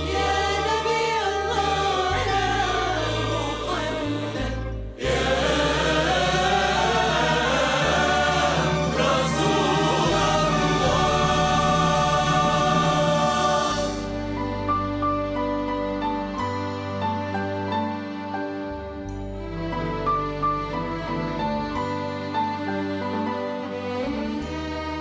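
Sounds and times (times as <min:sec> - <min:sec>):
choir singing: 0:00.0 - 0:15.0
string section: 0:00.0 - 0:25.0.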